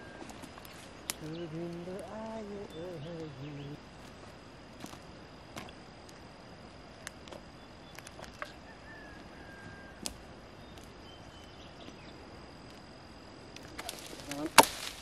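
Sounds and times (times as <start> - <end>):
steady high tone: 0.0 - 6.6
small crackles: 0.0 - 15.0
blade chopping dry branches: 13.6 - 15.0.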